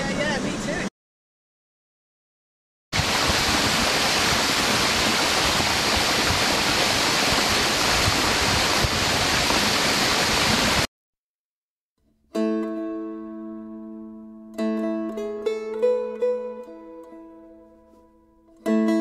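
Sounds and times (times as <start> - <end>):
waterfall rushing: 3.0 - 10.9.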